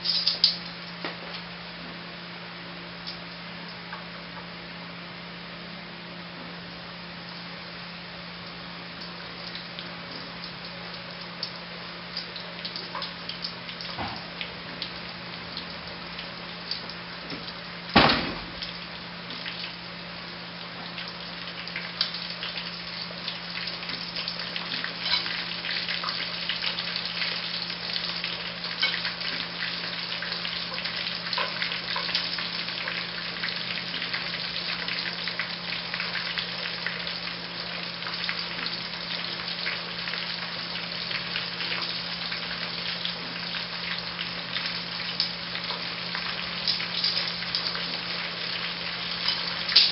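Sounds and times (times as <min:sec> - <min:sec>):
chicken deep-frying in oil: 0:00.0 - 0:49.9
sharp knock: 0:18.0 - 0:18.5.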